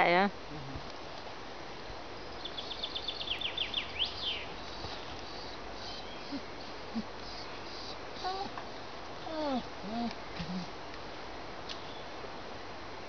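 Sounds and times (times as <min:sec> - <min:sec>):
steady background hiss: 0:00.0 - 0:13.0
bird singing: 0:02.2 - 0:08.5.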